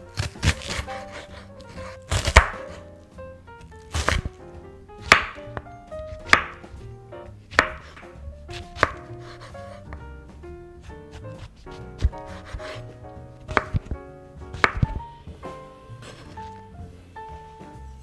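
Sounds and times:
knife chopping on wooden board: 0.2 - 2.8, 3.9 - 4.4, 5.0 - 6.8, 7.5 - 10.0, 10.8 - 15.0.

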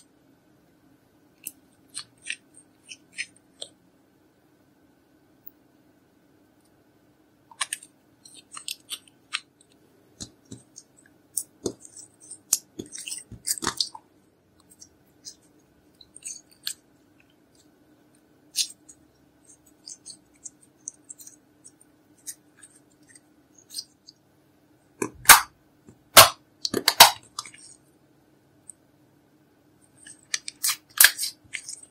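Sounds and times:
slime squishing with sticky crackles: 1.4 - 3.8, 7.5 - 24.2, 29.9 - 31.9.

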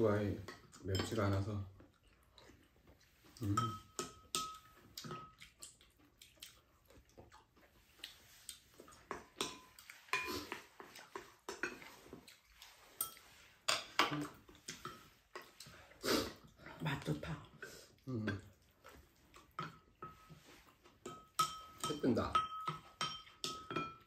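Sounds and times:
spoons clinking on ceramic bowls: 0.4 - 1.4, 3.4 - 5.4, 8.9 - 12.0, 12.9 - 15.7, 19.4 - 24.0.

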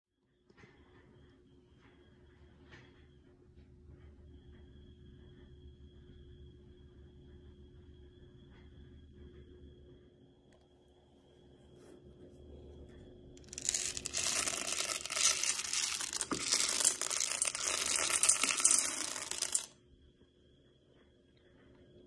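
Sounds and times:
beans pattering into a pot: 13.4 - 19.7.

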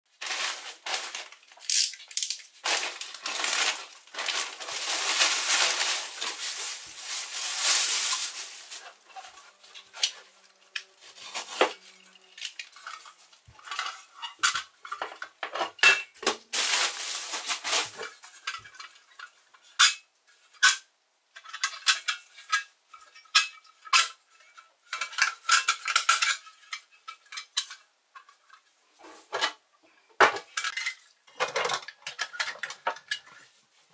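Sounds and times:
wrapping rustling: 0.1 - 14.1, 16.4 - 19.0
metal parts clinking: 1.0 - 6.4.

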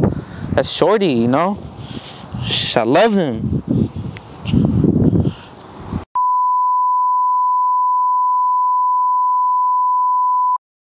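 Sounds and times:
steady electronic test tone beep: 6.2 - 10.6.

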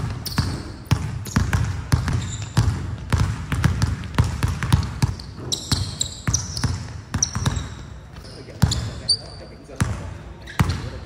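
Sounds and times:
basketball dribbling on hardwood: 0.0 - 9.0
sneaker squeaks: 0.0 - 11.0.

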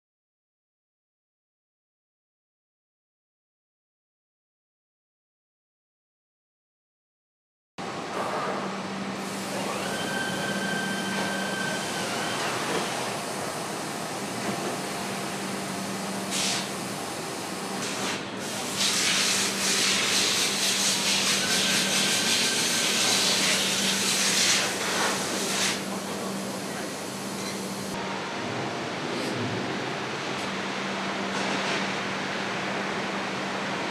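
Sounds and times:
casting machinery humming and hissing: 7.8 - 33.9.

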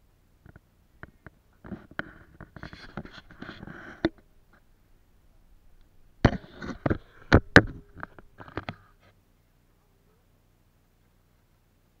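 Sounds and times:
knocks and scrapes: 0.5 - 4.7, 6.2 - 9.2
camera handling rustling: 1.0 - 4.6.

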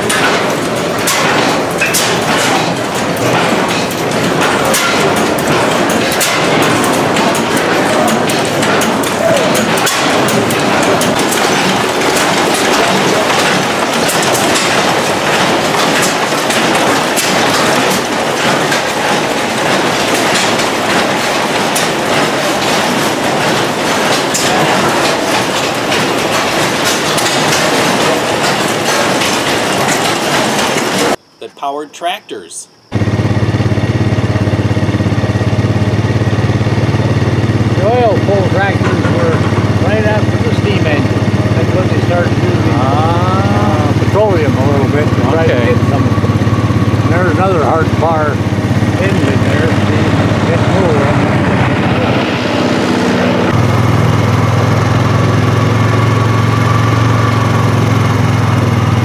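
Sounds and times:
stationary gas engines running: 0.0 - 31.8, 32.4 - 59.0.

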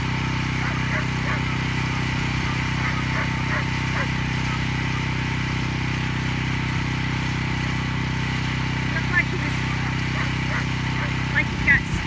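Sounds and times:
small engine humming: 0.0 - 12.0.

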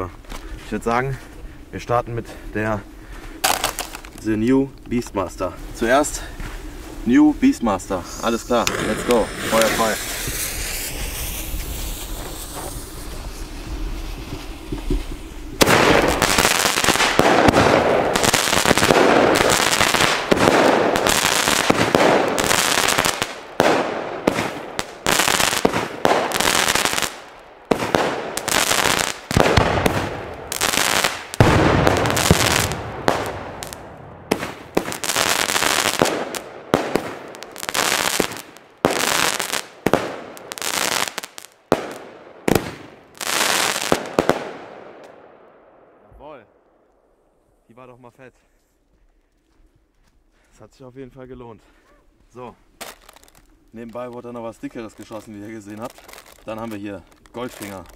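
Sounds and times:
fireworks shots and bursts: 3.4 - 4.1, 8.3 - 45.4.

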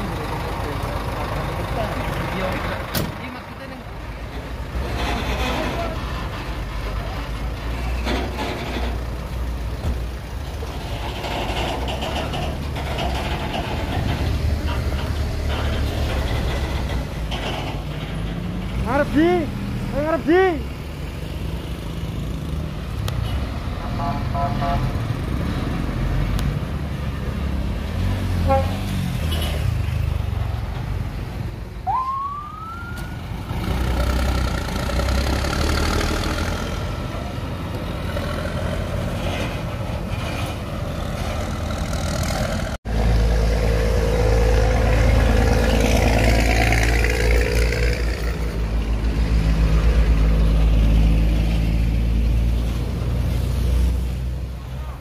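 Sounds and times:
truck diesel engines running: 0.0 - 55.0
rising siren tone: 31.8 - 33.4.

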